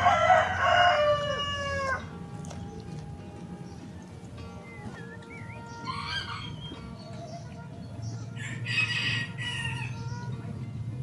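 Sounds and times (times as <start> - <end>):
rooster crowing: 0.0 - 2.1, 5.7 - 6.7, 8.4 - 10.1.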